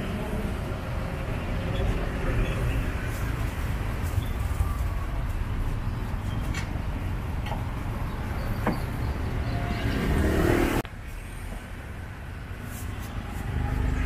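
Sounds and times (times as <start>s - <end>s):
road traffic rumble: 0.0s - 14.0s
vehicle passing: 6.8s - 11.3s.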